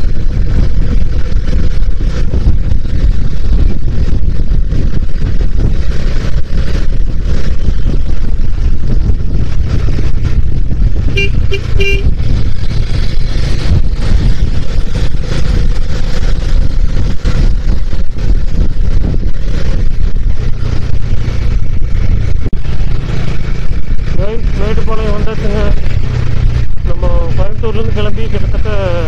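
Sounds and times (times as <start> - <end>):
motorcycle engine rumble: 0.0 - 29.0
wind: 0.0 - 29.0
vehicle horn beeps: 11.1 - 12.2.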